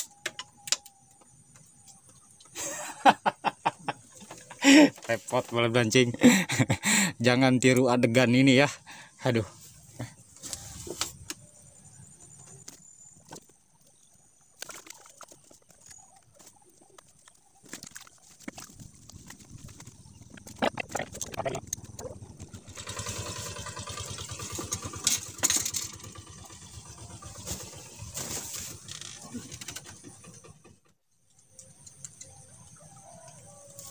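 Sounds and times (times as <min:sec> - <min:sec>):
gear knocking and clicking: 0:14.5 - 0:31.0
boat engine humming: 0:18.2 - 0:30.9.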